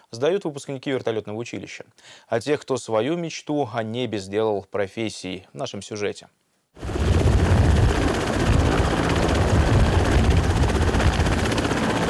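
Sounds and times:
helicopter engine noise: 6.8s - 12.0s
helicopter rotor beating: 6.8s - 12.0s.

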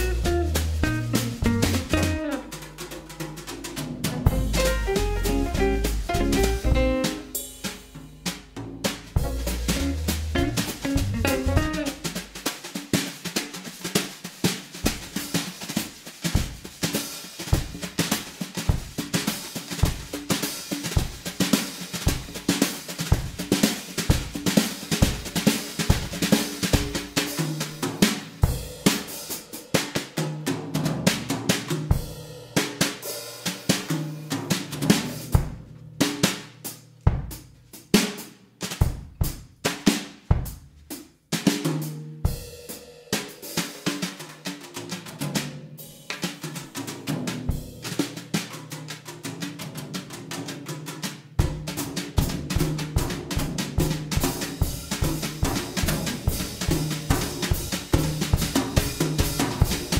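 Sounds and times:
bass line: 0.0s - 2.5s, 4.3s - 7.4s, 9.2s - 12.3s
drum kit playing a steady beat: 0.0s - 59.9s.

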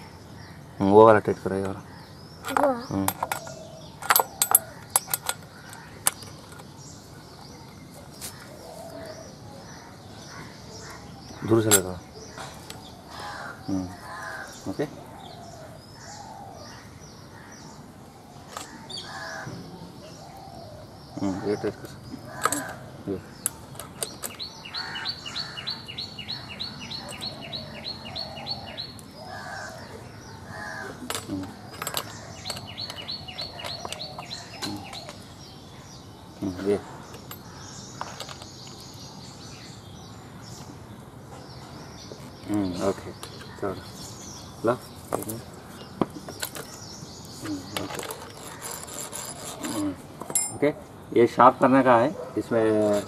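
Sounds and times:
faint birdsong: 0.0s - 53.0s
spanner clinking on metal: 2.4s - 6.7s, 11.6s - 11.9s, 22.4s - 22.8s, 23.4s - 24.5s, 31.0s - 35.1s, 47.7s - 50.7s.

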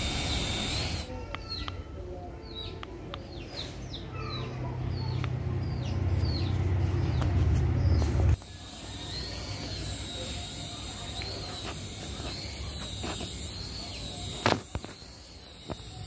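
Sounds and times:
toy helicopter rotors whirring: 0.0s - 2.0s, 8.2s - 16.0s
birds chirping: 0.0s - 16.0s.

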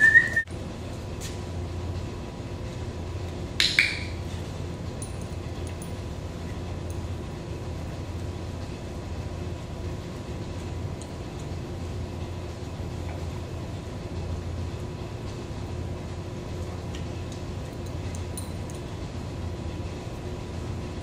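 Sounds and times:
room hum: 0.0s - 21.0s.

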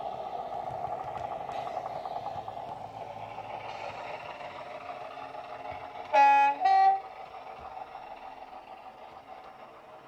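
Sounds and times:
diesel engines running: 0.0s - 10.0s
two-tone train horn: 6.1s - 7.1s.

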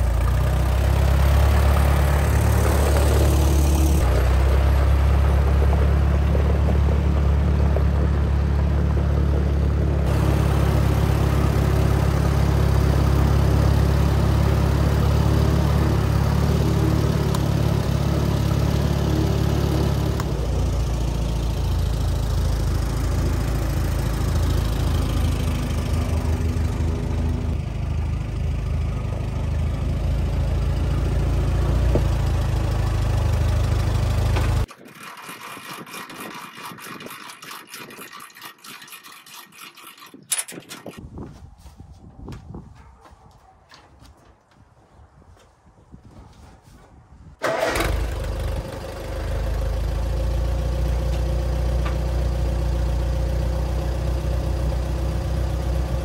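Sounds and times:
tractor engine running: 0.0s - 38.0s, 47.4s - 56.0s.

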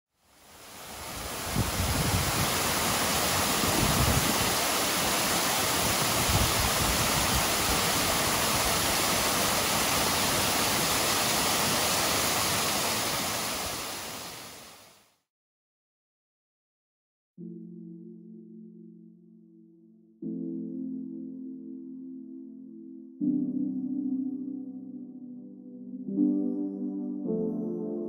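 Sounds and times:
waterfall splashing over rocks: 0.3s - 15.0s.

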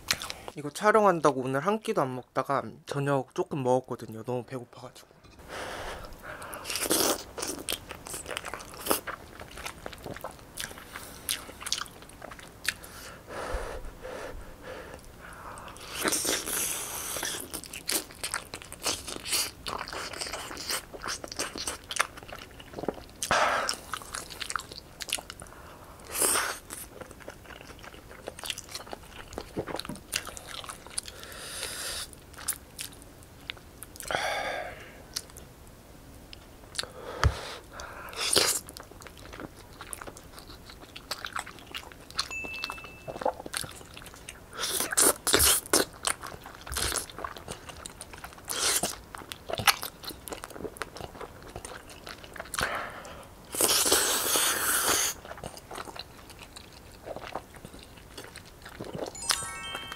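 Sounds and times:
person biting and chewing food: 6.0s - 13.1s, 14.9s - 25.4s, 36.8s - 42.4s, 43.2s - 52.7s, 53.5s - 59.9s.

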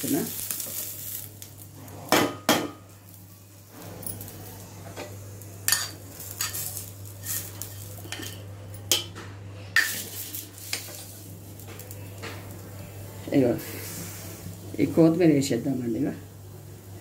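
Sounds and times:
spoon clinking and scraping: 5.7s - 9.1s.

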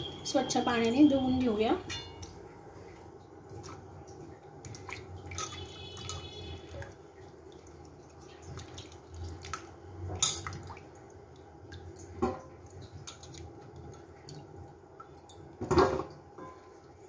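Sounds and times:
splashes: 3.6s - 15.3s.

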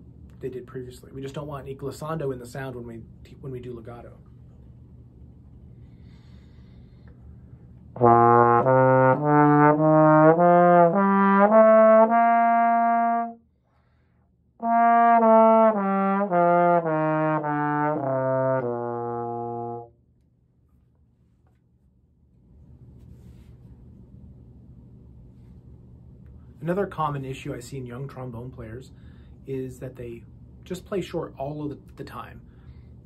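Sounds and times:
short breath: 5.7s - 7.7s, 13.6s - 14.3s, 29.0s - 29.4s, 32.5s - 33.0s
trombone playing a scale: 8.0s - 13.4s, 14.6s - 19.9s.

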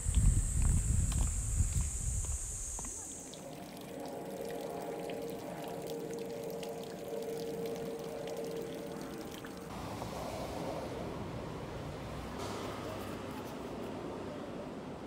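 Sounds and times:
wind buffeting microphone: 0.0s - 2.9s
steady high hiss: 0.0s - 6.4s
water trickling into pond: 0.2s - 9.8s.

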